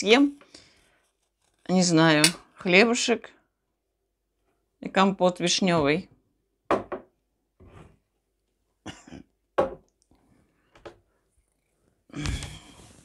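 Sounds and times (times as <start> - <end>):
woman coughing: 8.8 - 9.3
woman clearing her throat: 8.8 - 9.4.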